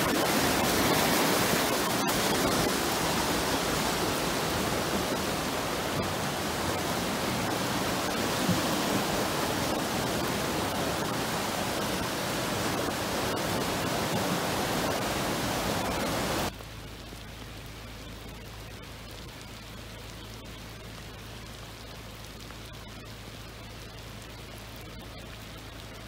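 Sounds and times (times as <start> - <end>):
floodwater rushing: 0.0 - 26.0
quiet hiss with low hum: 0.0 - 26.0.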